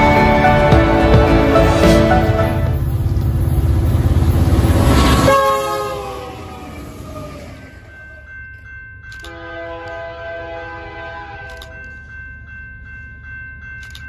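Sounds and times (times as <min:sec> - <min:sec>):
freight train passing: 0:00.0 - 0:14.0
train air horn: 0:05.0 - 0:07.2, 0:09.3 - 0:11.8.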